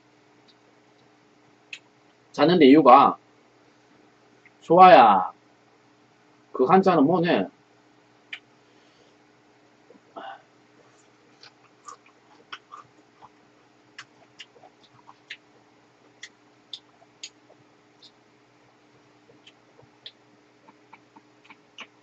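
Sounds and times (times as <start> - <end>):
faint steady hum: 0.0 - 22.0
mouth clicks from chewing: 11.0 - 15.5, 16.1 - 18.2, 19.3 - 22.0.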